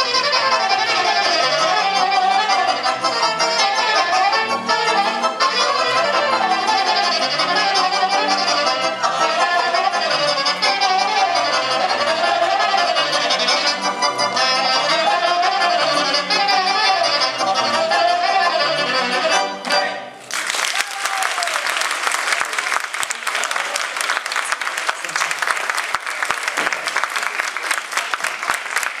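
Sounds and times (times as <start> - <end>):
folk dance tune on accordion: 0.0 - 20.2
saxophone: 0.0 - 20.2
audience applause: 20.2 - 29.0.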